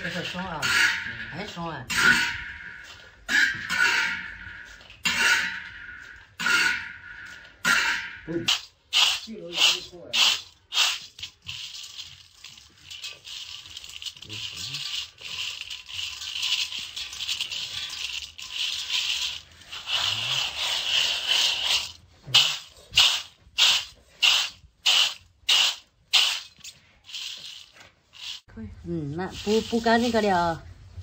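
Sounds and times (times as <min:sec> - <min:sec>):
peanuts rustling in metal colander: 0:00.0 - 0:02.4, 0:08.5 - 0:30.7
peanuts rattling in shaken colander: 0:08.5 - 0:28.5, 0:29.3 - 0:30.6.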